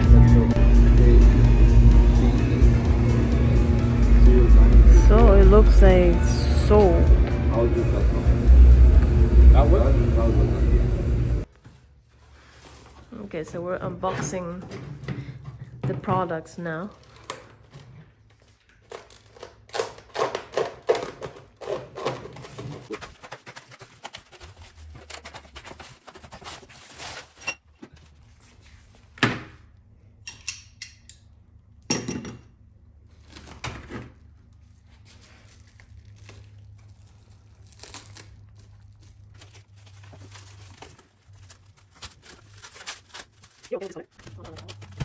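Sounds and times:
cardboard and packing rustling: 11.5 - 13.3, 20.2 - 29.2, 33.1 - 45.0.

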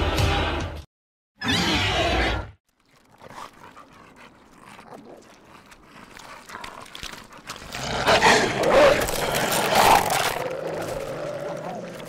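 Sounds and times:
wolves snarling and growling: 2.8 - 12.0.

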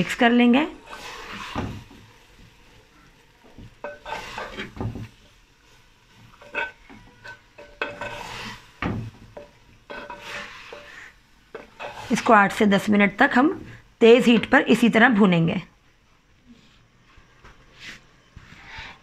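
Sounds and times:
food sizzling faintly: 0.0 - 19.0
wooden spoon scraping clay pot: 0.7 - 2.1, 3.6 - 5.2, 6.1 - 12.5.

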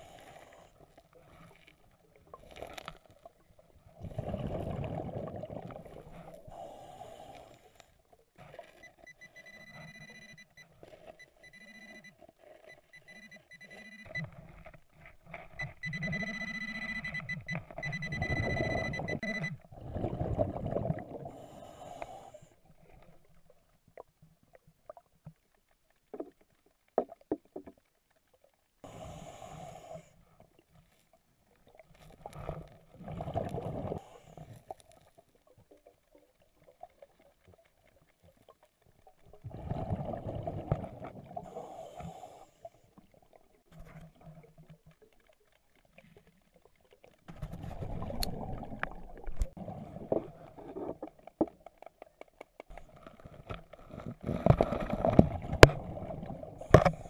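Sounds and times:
exhaled air bubbles: 1.5 - 7.3, 15.8 - 22.0, 32.2 - 34.5, 39.2 - 42.3, 47.3 - 51.4.

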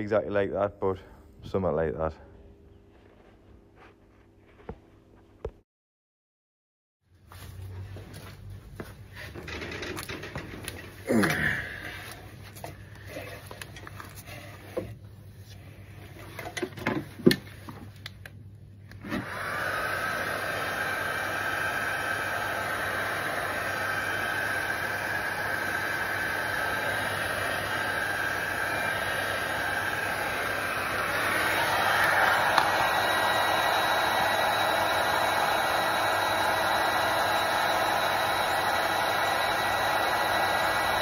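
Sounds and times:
heat gun fan whine: 18.9 - 41.0.

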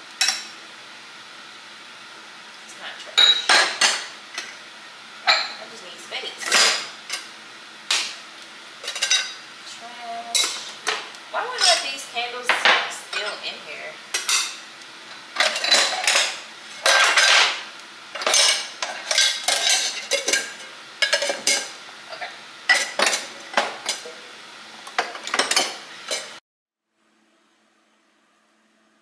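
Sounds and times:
faint hum: 26.9 - 29.0.

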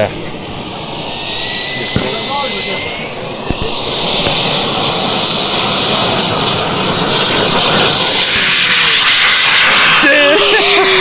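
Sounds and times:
jet engine rushing hiss: 0.0 - 11.0.

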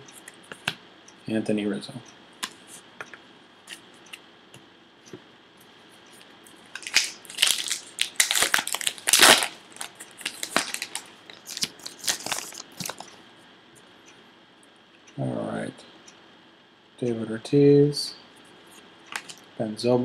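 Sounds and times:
foil wrapper crinkling: 6.8 - 13.1.

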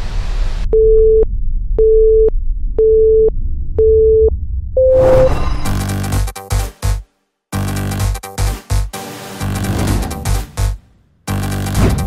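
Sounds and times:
low rumble: 0.0 - 5.9
electronic beeps: 1.8 - 5.8
rising whoosh: 4.4 - 5.9
electronic music: 7.6 - 12.0.

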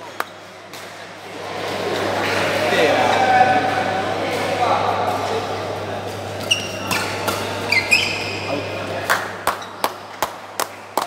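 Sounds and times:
shoes squeaking on court: 6.2 - 8.7.

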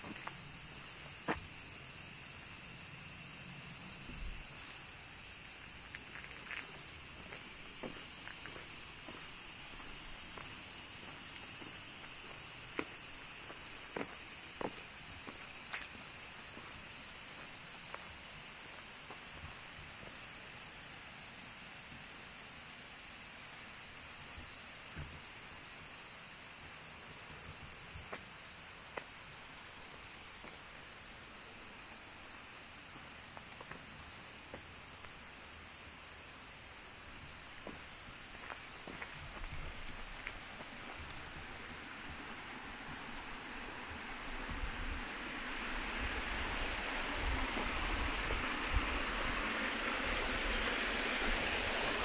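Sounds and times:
footsteps on a path: 0.0 - 1.6, 3.9 - 20.3, 27.2 - 35.4, 36.9 - 43.2
cicadas droning: 0.0 - 52.0.

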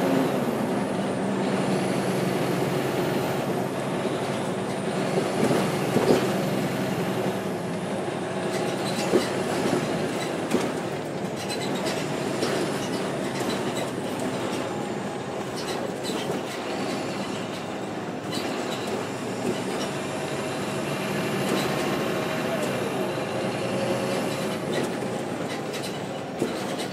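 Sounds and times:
bus body rattles: 0.0 - 26.9
bus engine and road rumble: 0.0 - 26.9
sharp knocks and clatters: 8.5 - 14.8, 24.4 - 26.9.

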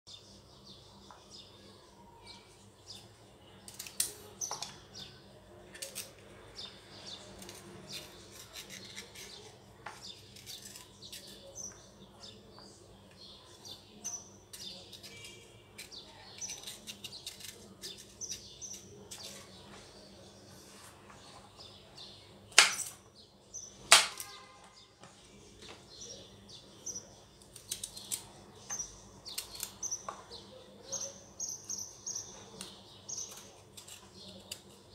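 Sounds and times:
small birds chirping: 0.1 - 34.9
green beans snapping: 3.7 - 4.8, 22.6 - 23.0, 23.9 - 24.4, 27.4 - 28.3, 29.3 - 30.2.

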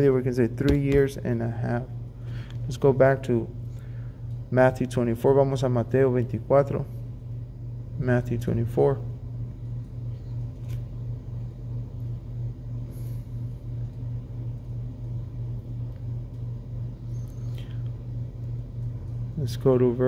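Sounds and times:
low room hum: 0.0 - 20.0
pages being turned: 10.6 - 10.9.

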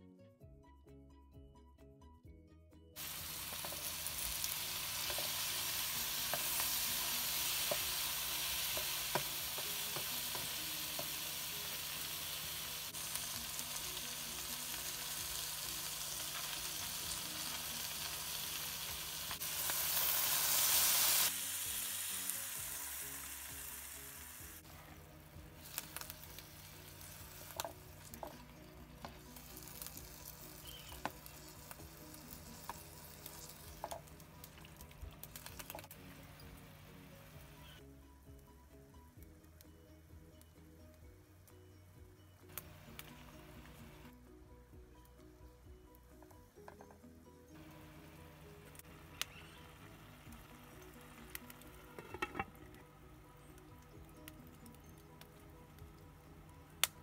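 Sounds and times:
food sizzling in hot oil: 3.0 - 37.8, 47.6 - 57.0
utensil knocking on pan: 52.0 - 52.6.

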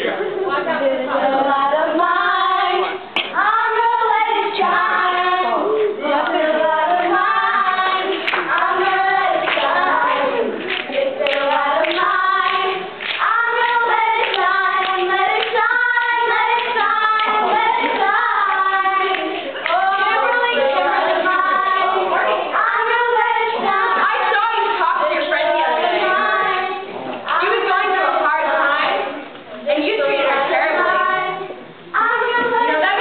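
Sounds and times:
girls singing together: 0.0 - 33.0
hand clapping: 2.8 - 3.4, 8.0 - 15.7, 16.5 - 20.4.

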